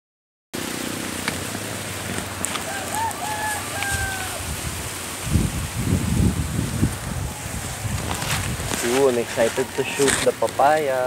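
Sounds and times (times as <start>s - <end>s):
outdoor hiss: 0.6s - 11.0s
wind on microphone: 1.4s - 10.6s
rooster crowing: 2.5s - 4.6s, 9.1s - 10.2s.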